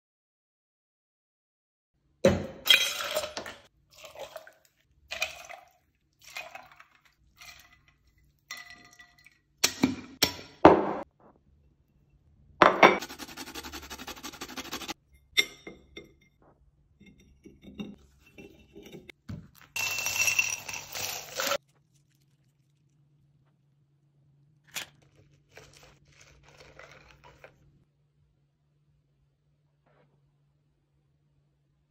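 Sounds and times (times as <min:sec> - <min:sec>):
glassware and ice clinking: 0:08.5 - 0:09.4, 0:19.8 - 0:21.6
drink pouring onto crushed ice: 0:19.8 - 0:21.6.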